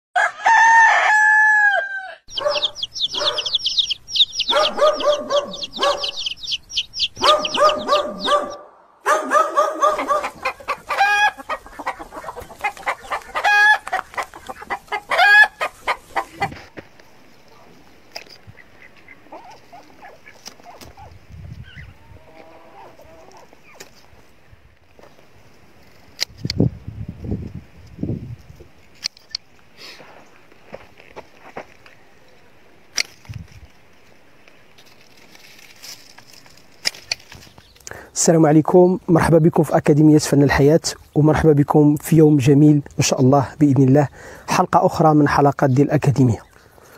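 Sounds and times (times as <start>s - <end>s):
rooster crowing: 0.2s - 3.6s, 7.2s - 11.5s, 13.4s - 13.9s, 15.1s - 15.6s
small bird chirping: 2.3s - 8.6s
chickens clucking: 2.3s - 16.8s, 17.5s - 24.0s.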